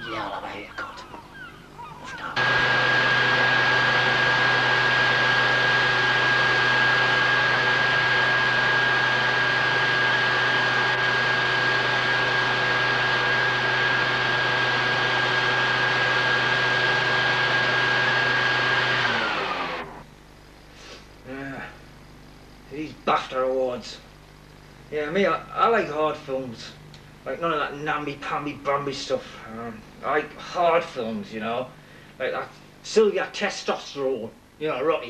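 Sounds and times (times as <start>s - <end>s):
electric motor whining: 2.3s - 20.0s.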